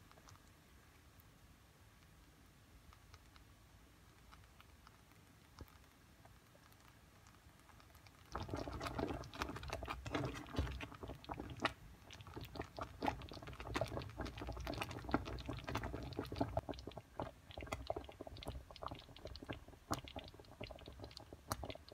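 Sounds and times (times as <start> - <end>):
small crackling pops: 0.0 - 21.9
jam bubbling and popping in a pot: 4.2 - 21.9
spatula stirring fruit: 8.4 - 21.9.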